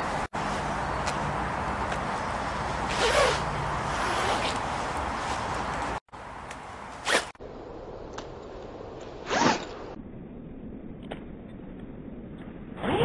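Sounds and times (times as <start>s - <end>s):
jacket zip being pulled: 2.9s - 4.7s, 7.0s - 7.3s.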